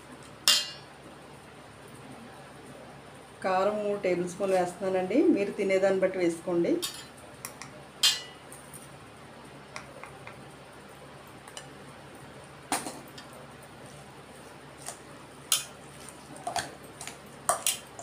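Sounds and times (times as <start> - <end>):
metal spoon clinking on steel: 0.5 - 0.9, 8.0 - 8.4.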